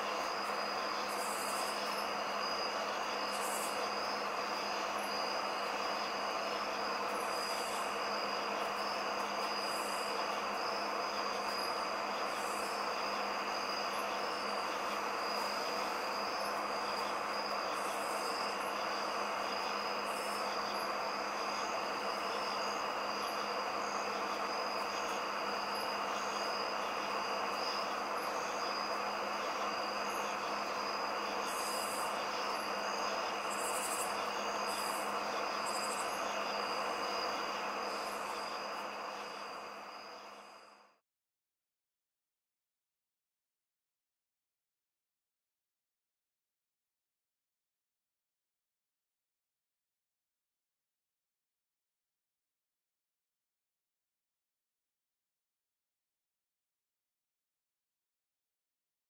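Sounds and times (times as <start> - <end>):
continuous insect hum: 0.0 - 41.0
high-pitched insect trill: 0.0 - 41.0
short buzzy insect calls: 0.0 - 41.0.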